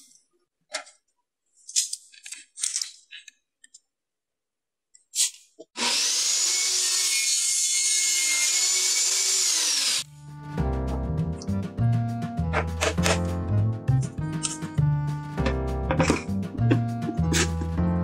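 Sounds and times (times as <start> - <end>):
table saw cutting pipe: 5.8 - 10.1
music: 10.0 - 18.0.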